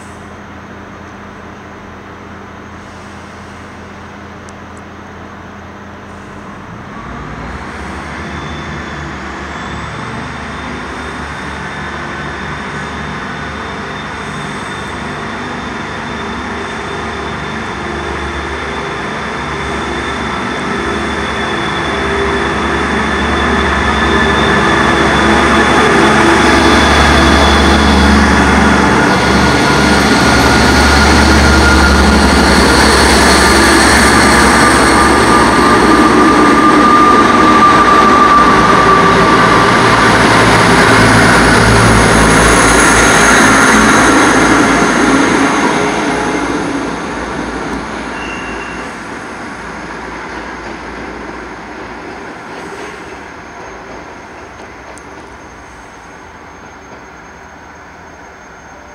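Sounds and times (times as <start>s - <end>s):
diesel train engines under power: 0.0s - 58.9s
train wheels on rails: 0.0s - 58.9s.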